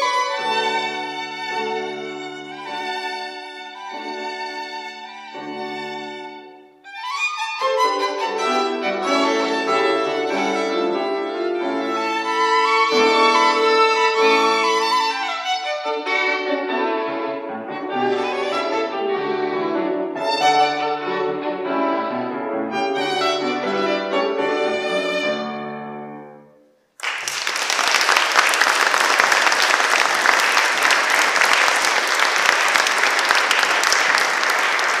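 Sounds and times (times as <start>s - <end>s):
violin with piano: 0.0s - 26.4s
audience applause: 27.0s - 35.0s.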